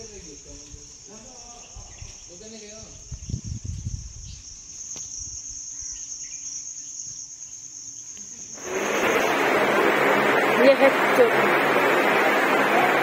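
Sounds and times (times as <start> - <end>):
insects shrilling: 0.0 - 9.8
noisy rushing hubbub: 8.6 - 13.0.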